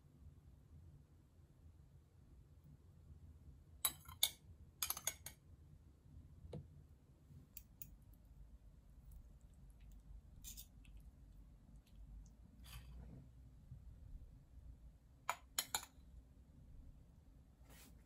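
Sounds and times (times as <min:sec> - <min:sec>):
metal spoon clinking on dishes: 0:03.9 - 0:05.4, 0:10.4 - 0:11.0, 0:15.3 - 0:16.0.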